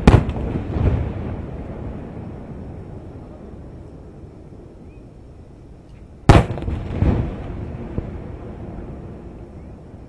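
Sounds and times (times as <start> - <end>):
firework bang with rumbling tail: 0.0 - 2.6, 6.3 - 9.0.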